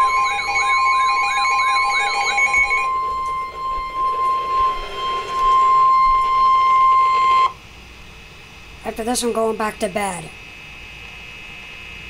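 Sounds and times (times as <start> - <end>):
steady alarm tone: 0.0 - 7.6
warbling siren-like alert tone: 0.0 - 7.6.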